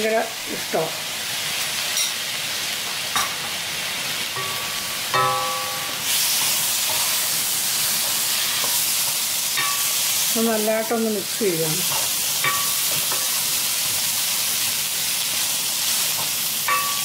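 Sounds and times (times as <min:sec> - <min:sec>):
mushrooms sizzling in hot oil: 0:00.0 - 0:17.0
spoon clinking against pan: 0:04.4 - 0:07.1, 0:09.6 - 0:10.0, 0:11.9 - 0:13.4, 0:16.2 - 0:17.0.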